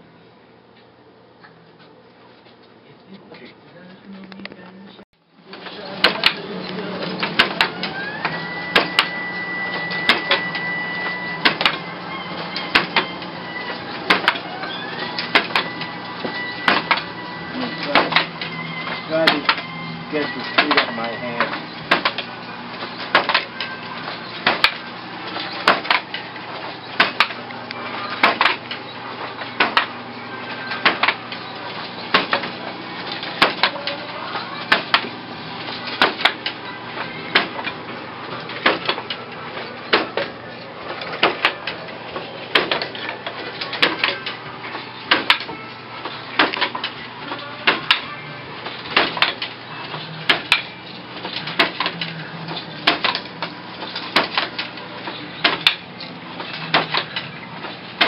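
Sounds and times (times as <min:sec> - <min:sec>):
wooden loom clacking: 0:14.1 - 0:14.4, 0:20.2 - 0:22.2, 0:23.0 - 0:23.6, 0:24.4 - 0:26.1, 0:27.0 - 0:27.4, 0:32.1 - 0:32.5, 0:33.1 - 0:34.0, 0:35.8 - 0:36.6, 0:41.0 - 0:44.3, 0:45.1 - 0:45.6, 0:48.8 - 0:49.5, 0:50.2 - 0:58.0.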